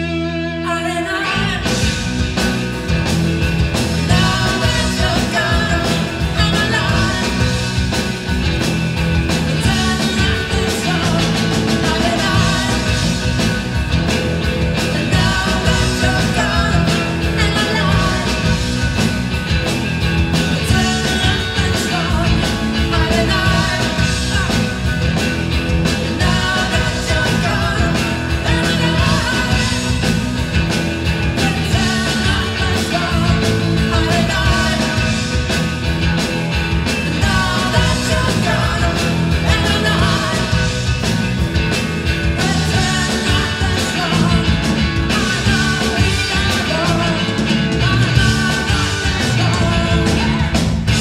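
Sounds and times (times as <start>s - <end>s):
bass guitar: 0.0s - 51.0s
electric guitar: 0.0s - 51.0s
woman singing: 0.6s - 1.8s, 4.0s - 7.7s, 9.6s - 13.3s, 14.9s - 18.6s, 20.6s - 24.8s, 26.0s - 30.0s, 31.4s - 35.3s, 37.1s - 40.8s, 42.4s - 51.0s
drum kit: 1.3s - 51.0s.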